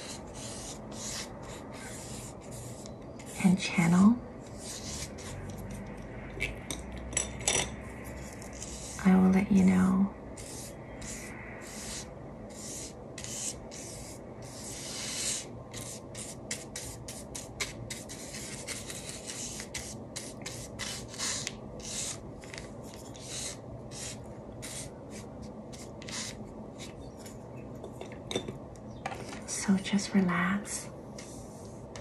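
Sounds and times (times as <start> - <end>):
paintbrush scratching on paper: 0.0 - 3.7, 4.5 - 5.8, 8.2 - 9.1, 10.4 - 22.2, 22.8 - 27.1.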